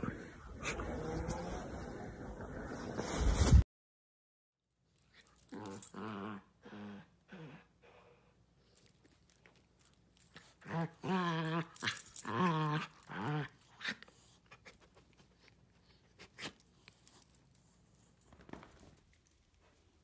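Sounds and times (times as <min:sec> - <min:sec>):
dog play-growling: 0:05.1 - 0:08.0, 0:10.2 - 0:17.2.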